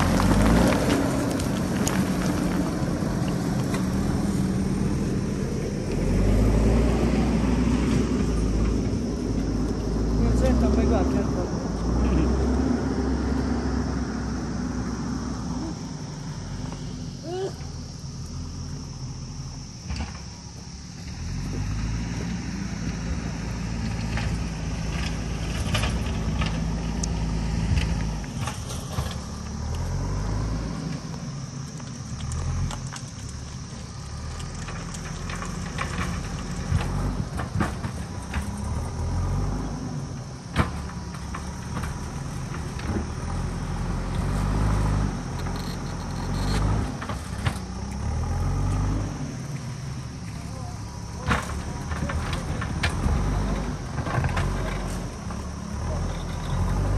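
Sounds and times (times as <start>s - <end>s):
diesel engine revving: 0.0s - 56.9s.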